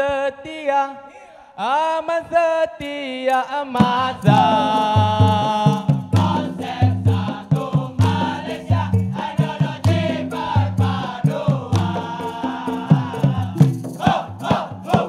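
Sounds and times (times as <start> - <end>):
lead singer: 0.0 - 15.0
men singing in chorus: 0.0 - 15.0
steady drum beat: 3.8 - 15.0.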